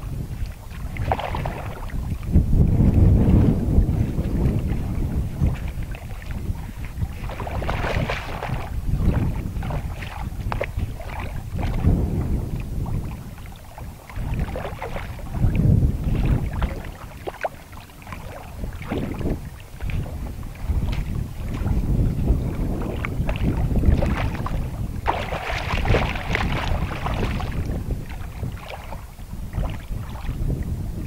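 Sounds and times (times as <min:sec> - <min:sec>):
gusty wind buffeting microphone: 0:00.0 - 0:31.0.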